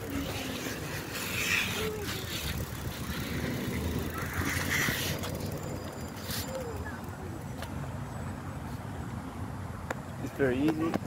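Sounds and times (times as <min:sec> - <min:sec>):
bicycle stopping: 0:00.0 - 0:07.7
faint voices: 0:00.0 - 0:07.9
wind on microphone: 0:00.1 - 0:05.4.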